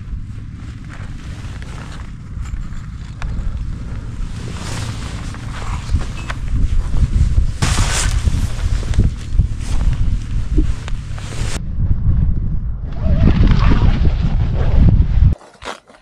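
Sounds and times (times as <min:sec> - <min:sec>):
rustling: 0:00.0 - 0:11.6
wind buffeting microphone: 0:00.0 - 0:15.4.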